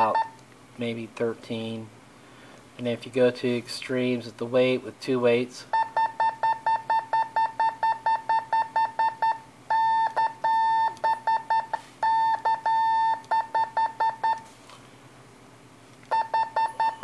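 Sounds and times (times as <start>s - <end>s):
morse code beeps: 0.0s - 0.4s, 5.7s - 14.4s, 16.1s - 17.0s.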